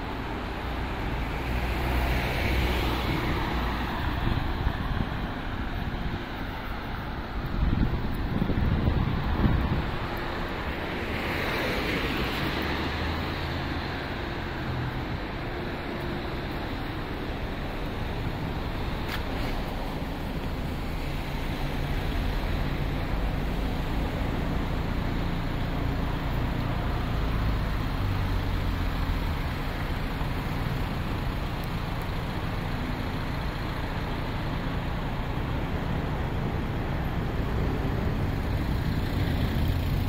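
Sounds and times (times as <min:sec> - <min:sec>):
low engine hum: 0:00.0 - 0:40.0
passing vehicles: 0:00.0 - 0:40.0.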